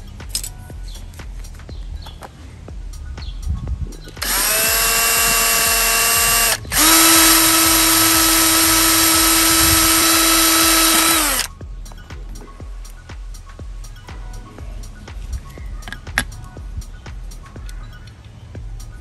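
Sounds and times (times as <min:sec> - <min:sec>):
electric drill whining: 0:04.2 - 0:11.5.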